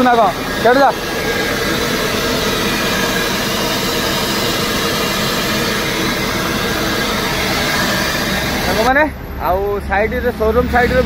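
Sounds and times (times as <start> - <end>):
diesel engine running: 0.0 - 11.0
turbocharger hissing whoosh: 0.0 - 11.0
man talking: 8.7 - 11.0.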